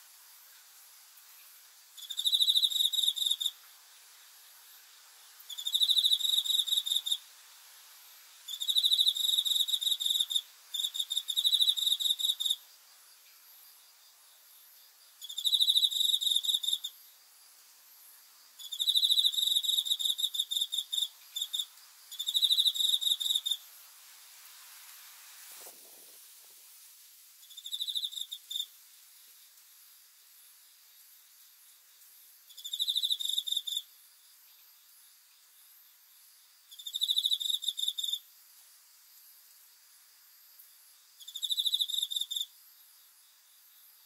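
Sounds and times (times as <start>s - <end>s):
cricket trilling: 1.4s - 3.6s, 4.7s - 7.3s, 8.5s - 23.8s, 27.4s - 28.8s, 32.2s - 38.3s, 40.5s - 44.0s.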